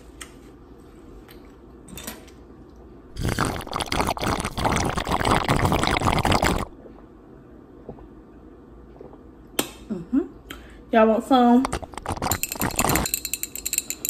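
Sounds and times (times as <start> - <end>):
person slurping and swallowing liquid: 3.1 - 6.8, 8.9 - 9.3, 11.6 - 13.1.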